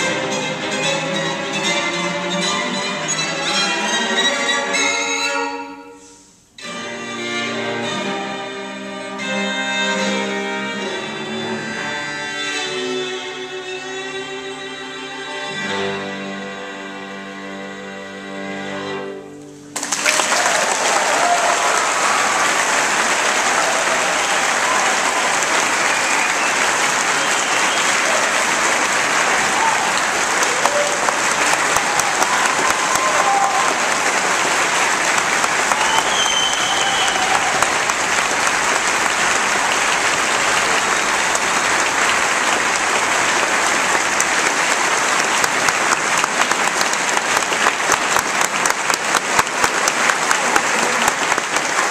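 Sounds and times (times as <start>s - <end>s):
audience applause: 19.7s - 51.9s.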